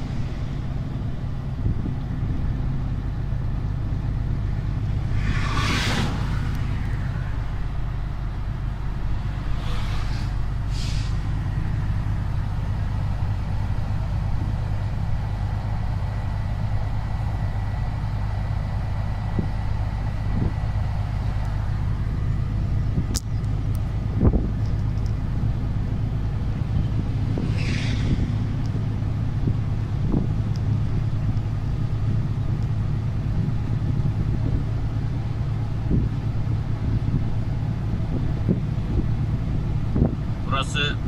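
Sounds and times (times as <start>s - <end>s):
truck diesel engine running: 0.0s - 41.0s
short air hisses: 9.6s - 11.3s, 27.3s - 28.6s.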